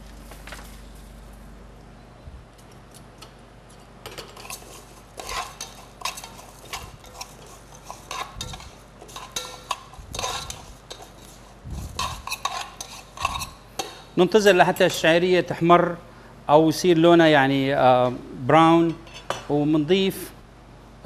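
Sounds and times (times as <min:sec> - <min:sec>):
spoon scraping a metal pot: 0:04.1 - 0:15.0.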